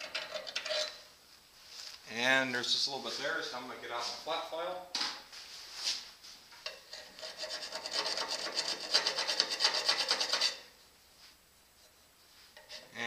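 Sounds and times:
file scraping metal: 0.0 - 1.1, 6.7 - 10.8, 12.6 - 13.0.

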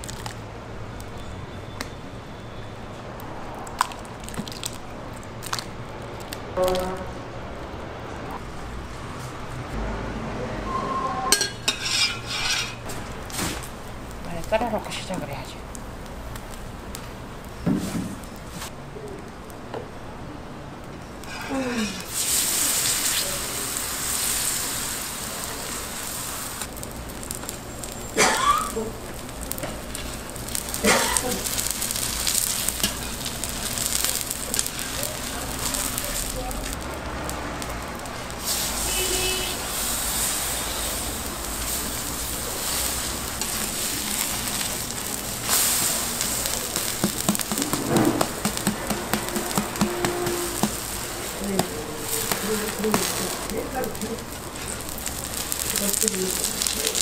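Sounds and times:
batter sizzling in hot oil: 0.0 - 6.5, 11.4 - 18.7, 21.2 - 57.0
metal spatula scraping griddle: 10.7 - 12.9, 21.2 - 22.3, 46.8 - 51.4.

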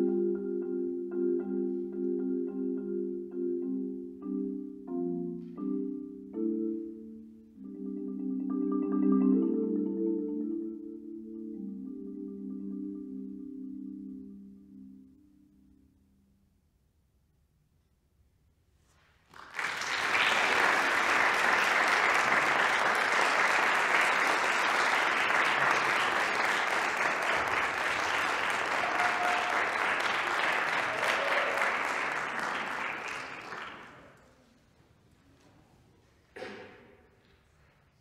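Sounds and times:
audience applauding: 19.3 - 34.2.

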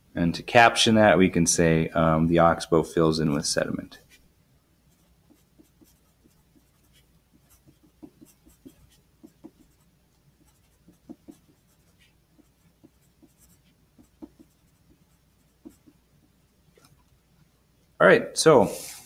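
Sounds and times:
pencil scratching on paper: 4.9 - 17.0.

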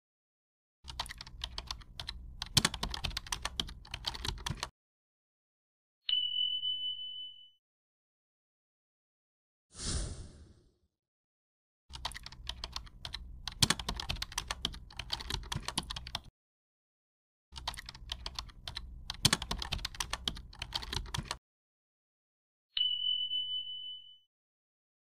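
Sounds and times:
keyboard typing: 0.9 - 4.7, 11.9 - 16.3, 17.6 - 21.4.

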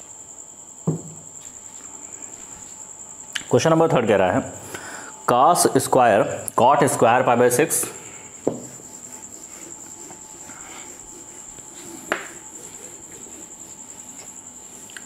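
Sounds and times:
duster wiping a whiteboard: 6.8 - 15.0.

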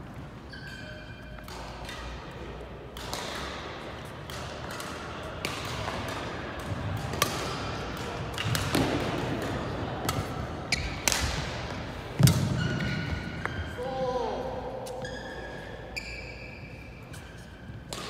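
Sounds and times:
shoe squeaks: 0.4 - 1.5, 10.7 - 11.0, 12.3 - 13.8, 14.8 - 17.9
rackets striking shuttlecocks: 1.4 - 13.6.

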